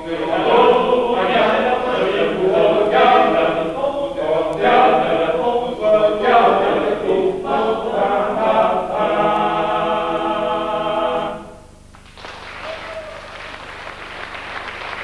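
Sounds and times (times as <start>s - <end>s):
choir singing a cappella: 0.0s - 11.7s
audience applauding: 11.9s - 15.0s.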